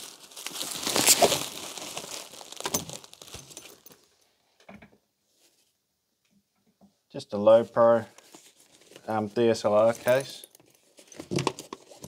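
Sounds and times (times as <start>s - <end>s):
plastic wrapping crackling: 0.0s - 4.1s.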